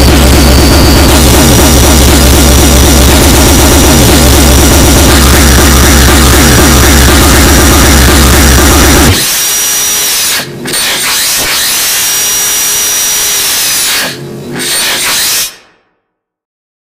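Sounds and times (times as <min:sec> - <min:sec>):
distorted kick drums: 0:00.0 - 0:09.2
power drill whirring: 0:00.0 - 0:15.6.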